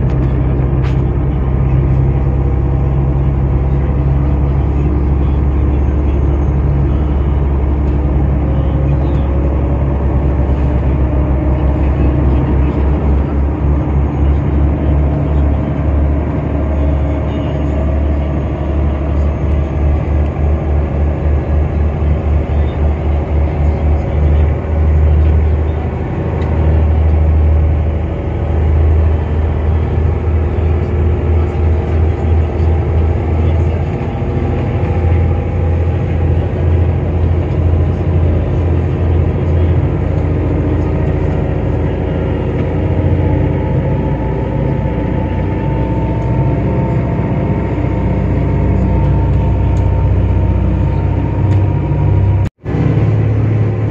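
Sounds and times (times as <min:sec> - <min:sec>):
boat engines droning: 0:00.0 - 0:53.9.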